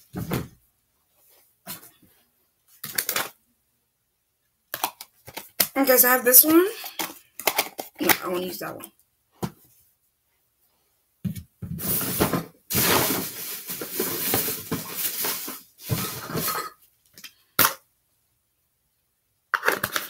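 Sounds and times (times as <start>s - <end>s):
hands rummaging small objects: 11.9s - 16.5s.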